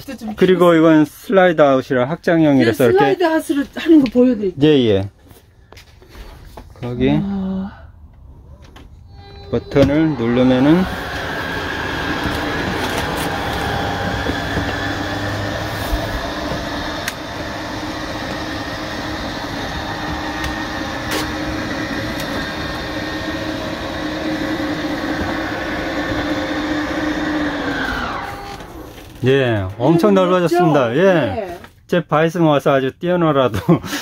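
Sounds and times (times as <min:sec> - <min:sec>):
electric slide-out mechanism whining: 0:08.4 - 0:30.6.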